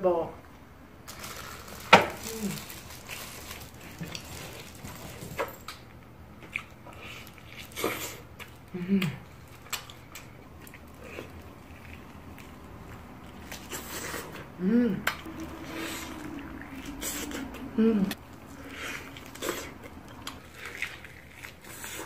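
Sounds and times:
biting and chewing meat: 1.3 - 22.0
low hum falling in pitch: 14.6 - 18.2.

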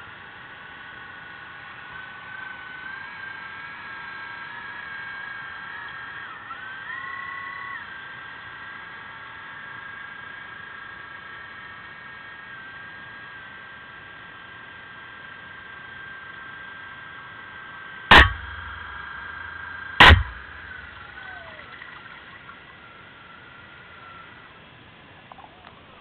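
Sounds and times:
small electric motors whining: 0.0 - 26.0
sharp underwater bangs: 18.1 - 21.8.

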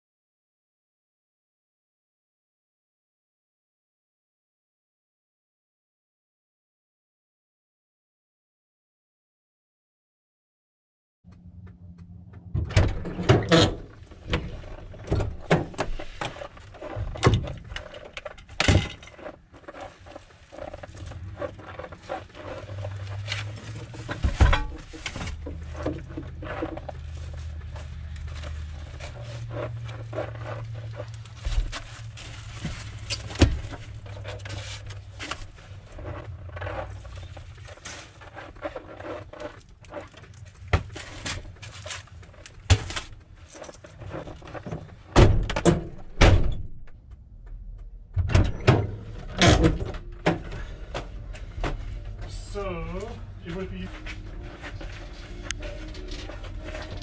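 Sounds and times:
low steady rumble: 11.3 - 42.6, 45.8 - 57.0.

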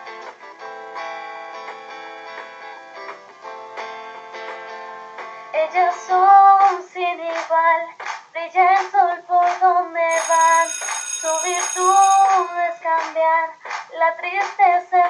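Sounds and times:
high bright ringing: 10.1 - 12.7.

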